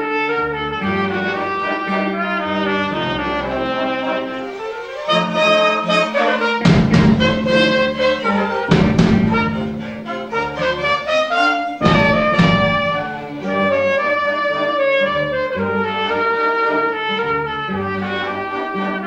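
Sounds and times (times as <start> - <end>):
orchestra playing: 0.0 - 19.0
drum kit crashes: 6.6 - 10.1, 11.8 - 13.2.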